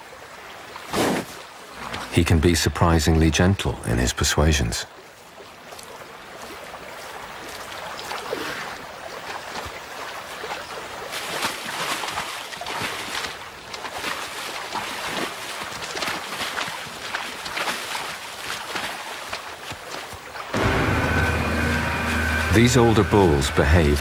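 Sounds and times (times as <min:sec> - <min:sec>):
shallow river over stones: 0:00.0 - 0:24.0
animals splashing through water: 0:04.9 - 0:24.0.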